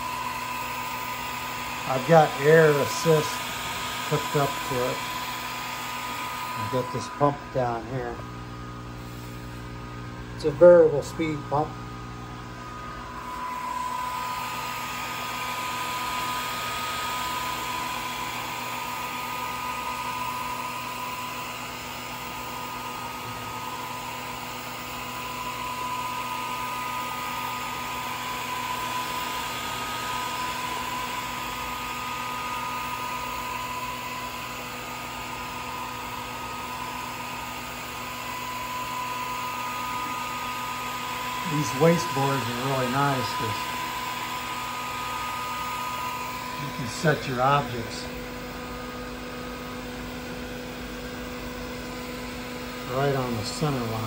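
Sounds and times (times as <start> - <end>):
laser engraver whine: 0.0 - 54.0
air assist hissing: 1.4 - 8.2, 8.9 - 9.8.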